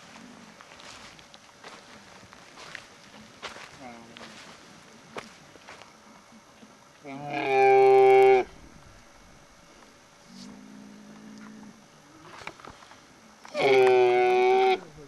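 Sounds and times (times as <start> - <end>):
camel moaning bellow: 7.1 - 8.6, 13.5 - 15.0.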